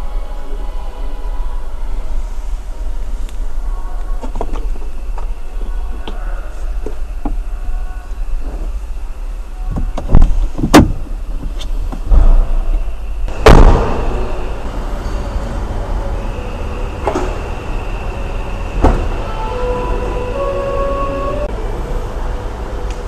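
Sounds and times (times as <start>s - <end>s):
steady low hum: 0.0s - 23.0s
car door knocks and clunks: 9.7s - 11.1s
heavy car door shutting: 18.7s - 21.5s.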